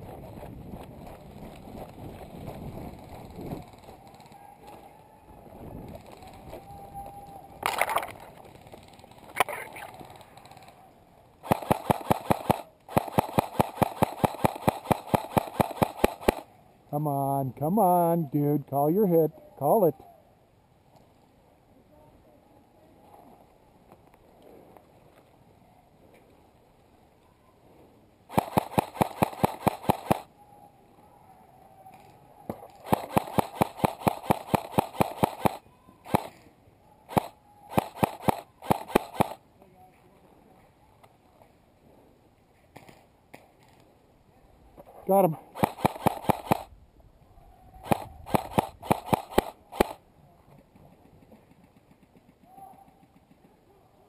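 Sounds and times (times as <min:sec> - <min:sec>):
airsoft rifle shots: 0:11.4 - 0:16.5, 0:28.3 - 0:30.3, 0:32.5 - 0:36.5, 0:37.1 - 0:39.4, 0:45.5 - 0:46.7, 0:47.8 - 0:50.0.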